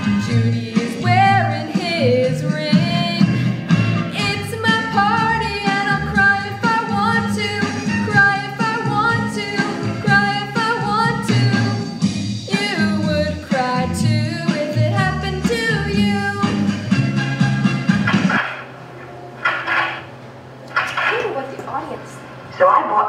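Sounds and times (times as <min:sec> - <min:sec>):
woman singing pop song: 0:00.0 - 0:03.4, 0:04.1 - 0:11.9, 0:12.5 - 0:16.8
instrumental accompaniment with bass: 0:00.0 - 0:18.5.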